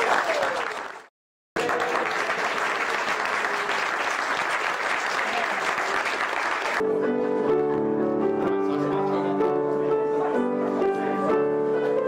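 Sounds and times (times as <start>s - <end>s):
crowd applauding: 0.0s - 6.8s.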